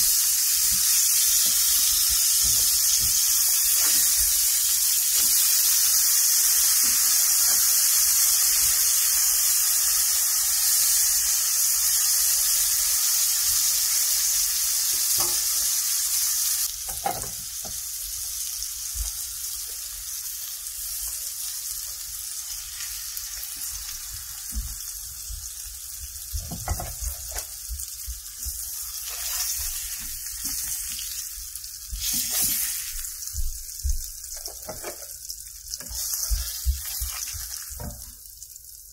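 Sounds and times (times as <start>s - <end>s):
fish sizzling in a pan: 0.0s - 38.9s
spatula scraping and knocking pan: 34.4s - 35.1s.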